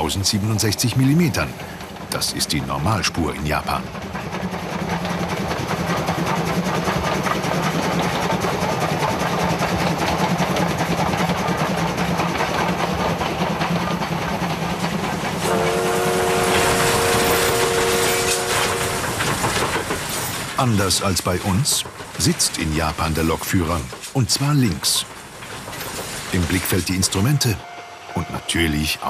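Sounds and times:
steam locomotive wheels rattling: 0.0 - 29.0
steam whistle chord: 15.4 - 19.0.

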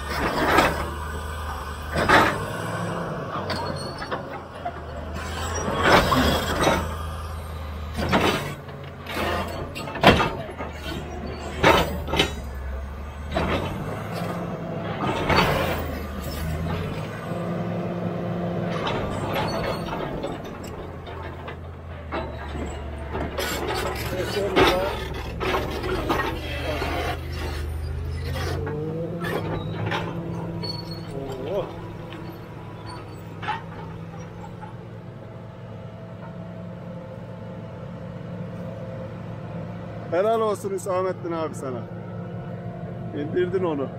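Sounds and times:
bulldozer diesel engine under load: 0.0 - 43.9
steel scraping on rock: 23.4 - 33.6.

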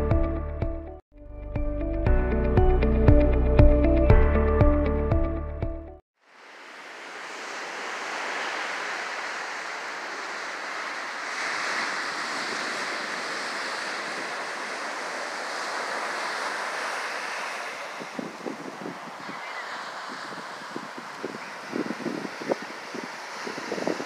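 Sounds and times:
surf breaking on beach: 6.2 - 24.0.

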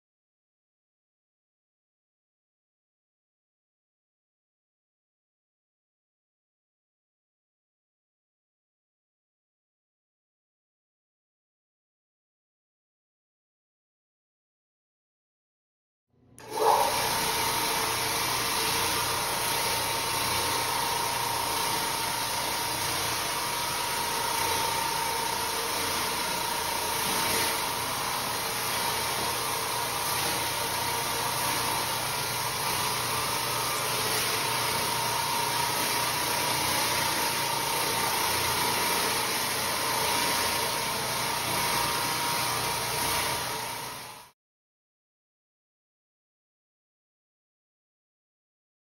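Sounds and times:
floor scrubbing machine running: 16.4 - 44.4.

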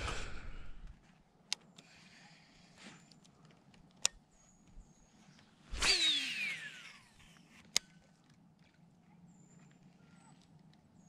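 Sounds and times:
fishing cast whoosh: 5.7 - 6.9
reel spool whirring: 5.7 - 8.0.

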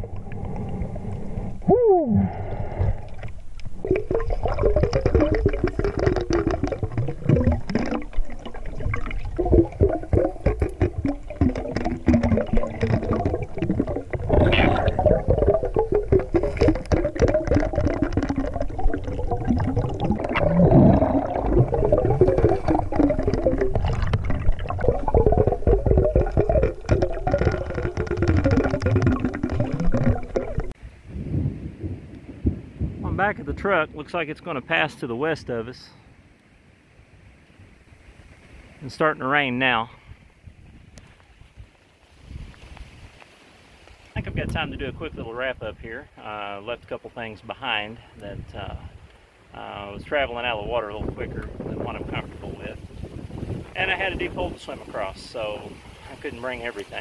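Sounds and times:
underwater clicks and tones: 0.0 - 30.8
underwater rushing river water: 0.0 - 31.0, 47.8 - 57.0.

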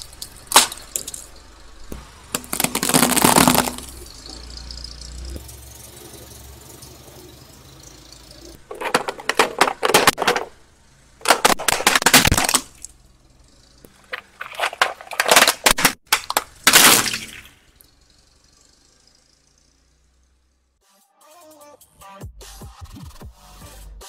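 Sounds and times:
tyre crushing plastic: 0.0 - 1.2, 2.3 - 4.0, 8.7 - 10.6, 11.2 - 12.9, 14.0 - 17.5.

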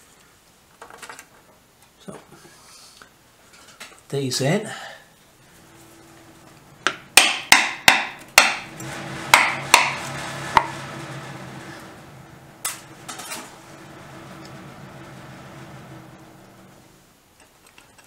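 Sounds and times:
low rumbling: 5.3 - 17.1
metal roof banging in wind: 5.8 - 17.0.

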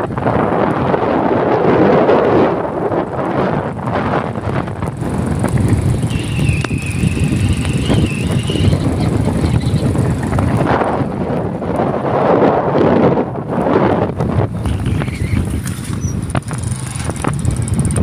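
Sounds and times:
wind buffeting microphone: 0.0 - 18.0
faint wavering whistle: 6.1 - 8.8.

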